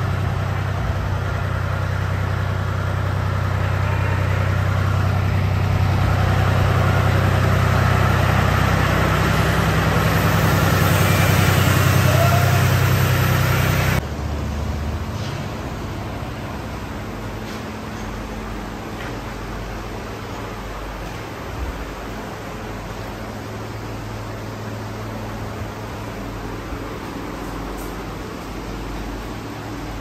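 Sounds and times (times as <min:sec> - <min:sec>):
machine engine running: 0:00.0 - 0:15.2.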